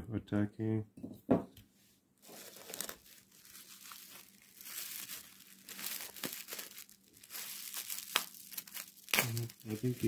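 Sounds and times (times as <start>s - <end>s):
bubble wrap crinkling: 2.2s - 10.0s.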